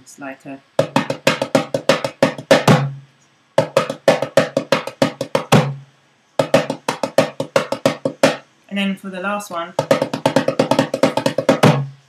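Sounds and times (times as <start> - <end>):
darbuka drumming: 0.8 - 3.0, 3.6 - 8.4, 9.7 - 12.0.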